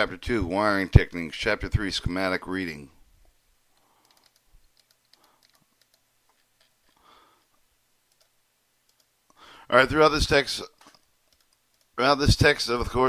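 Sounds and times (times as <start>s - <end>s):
faint computer clicks: 3.8s - 7.5s, 10.8s - 12.0s.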